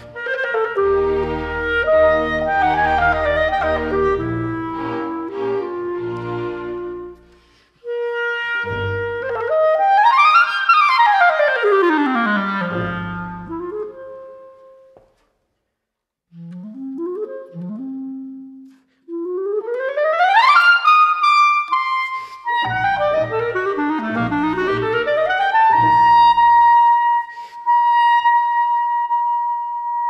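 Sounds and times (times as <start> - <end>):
string orchestra chords: 0.0 - 7.6
solo clarinet: 0.0 - 15.1, 16.3 - 30.0.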